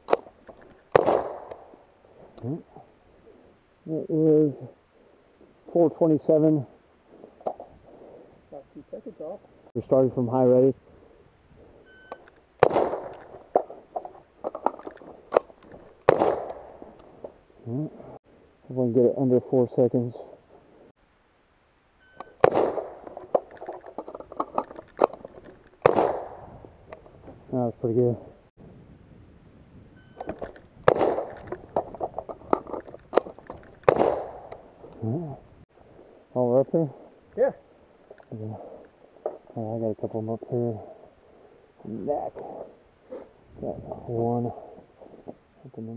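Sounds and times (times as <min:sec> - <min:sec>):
rifle shots: 0:00.9 - 0:01.7, 0:12.6 - 0:13.8, 0:14.6 - 0:16.8, 0:22.3 - 0:23.5, 0:25.8 - 0:26.5, 0:30.8 - 0:31.5, 0:33.1 - 0:34.6
short electronic beep: 0:11.8 - 0:12.2, 0:30.0 - 0:30.4
sharp clicks and knocks: 0:12.1 - 0:17.4, 0:22.2 - 0:26.0, 0:30.2 - 0:35.0.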